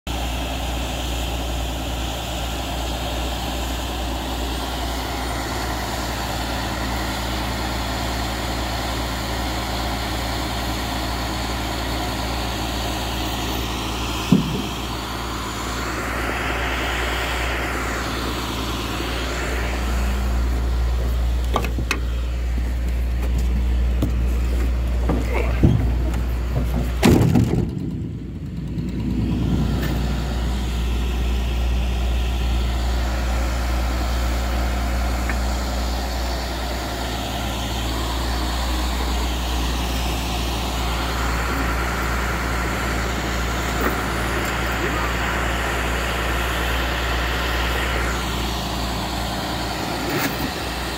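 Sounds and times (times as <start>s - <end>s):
truck engine idling: 0.1s - 50.9s
knocks: 14.2s - 14.8s.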